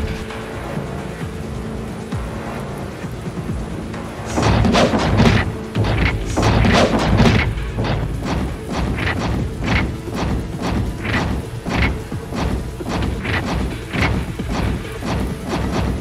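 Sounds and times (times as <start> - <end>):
background music: 0.0 - 16.0
booms and crashing impacts: 4.3 - 16.0.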